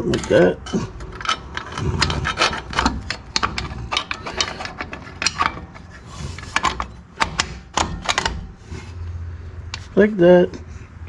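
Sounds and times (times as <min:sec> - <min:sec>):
metal brake hardware clicking: 0:00.0 - 0:10.0.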